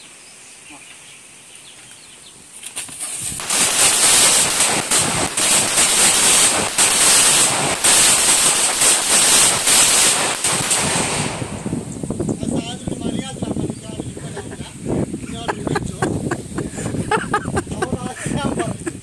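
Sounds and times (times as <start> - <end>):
firecrackers crackling: 2.5 - 12.7.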